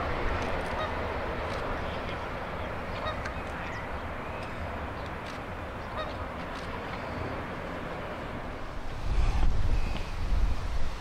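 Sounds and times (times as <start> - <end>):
waterfowl honking: 0.8 - 1.0, 2.9 - 3.4, 5.8 - 6.2.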